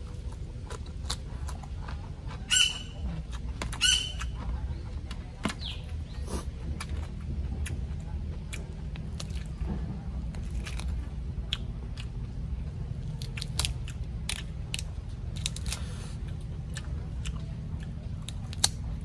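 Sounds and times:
steady low rumble: 0:00.0 - 0:19.0
prawn shell cracking: 0:13.1 - 0:15.9, 0:18.2 - 0:18.8.

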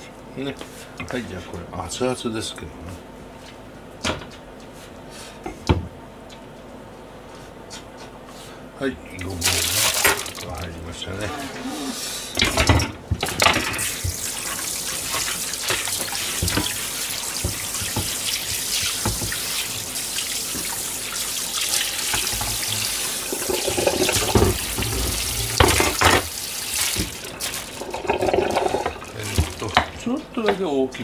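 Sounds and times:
tap water running into metal sink: 0:09.2 - 0:10.6, 0:13.1 - 0:30.0.

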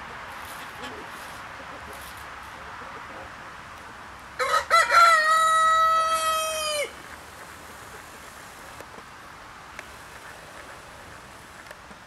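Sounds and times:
rooster crowing: 0:04.4 - 0:07.0.

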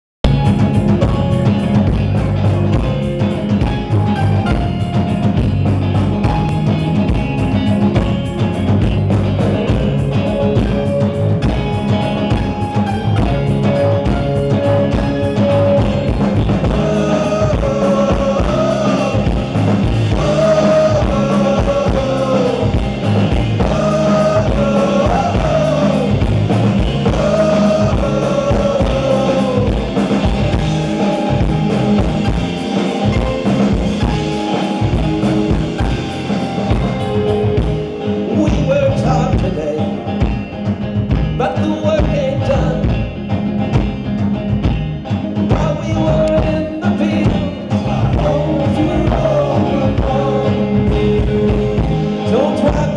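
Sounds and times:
live band playing: 0:00.2 - 0:52.9
man singing: 0:13.6 - 0:30.6, 0:37.4 - 0:40.2, 0:41.4 - 0:43.0, 0:45.5 - 0:52.9.

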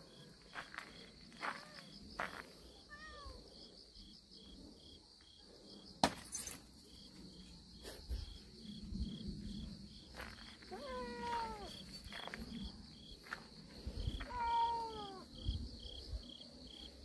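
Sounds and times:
insects chirping: 0:00.0 - 0:17.0
cat meowing: 0:02.9 - 0:03.4, 0:10.7 - 0:11.7, 0:14.2 - 0:15.3.

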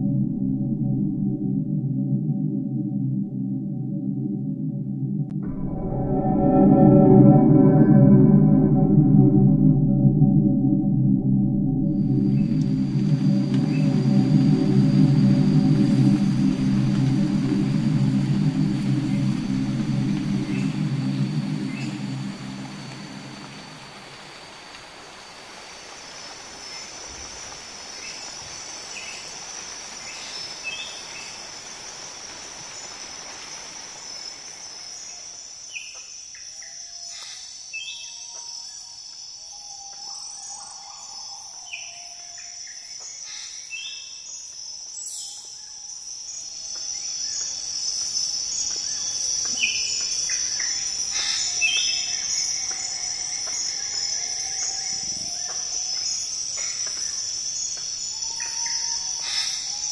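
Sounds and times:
high-pitched insect drone: 0:05.4 - 0:59.9
soft hiss: 0:12.1 - 0:36.2.

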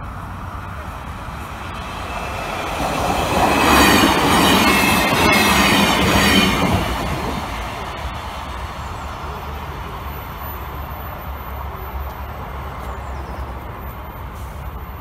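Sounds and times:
electric train rumbling past: 0:00.0 - 0:15.0
train wheels squealing on rails: 0:01.6 - 0:07.9.

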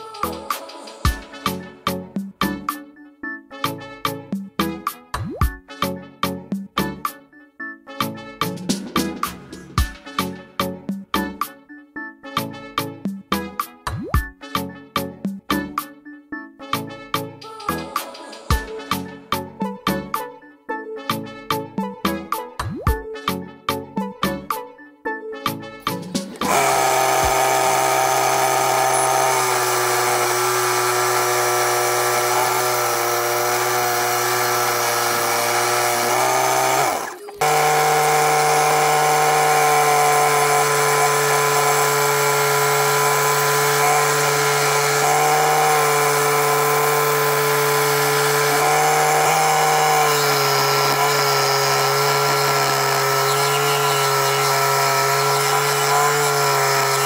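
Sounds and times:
saw blade cutting wood: 0:26.0 - 0:57.0
electric drill motor whine: 0:26.4 - 0:57.0.

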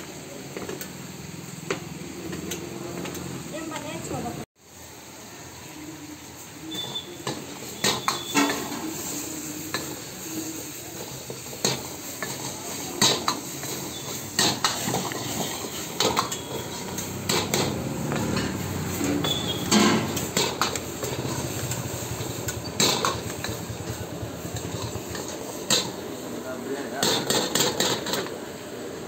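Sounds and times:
frying sizzle: 0:00.0 - 0:29.0
metal ladle clanking on a wok: 0:11.6 - 0:21.8, 0:22.4 - 0:23.7.

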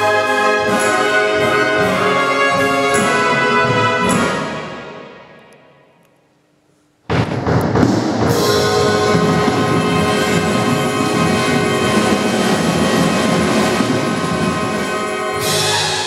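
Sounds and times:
wind band playing sustained chord: 0:08.3 - 0:16.0.

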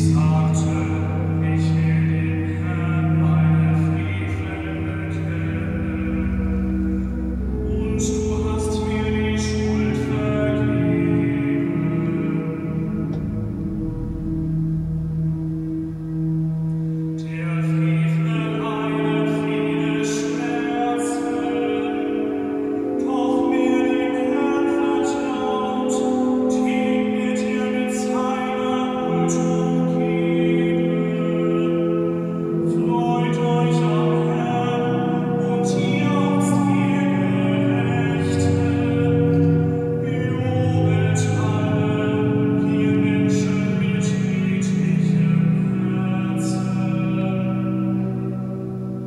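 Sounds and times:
pipe organ sustained chords: 0:00.0 - 0:49.0.

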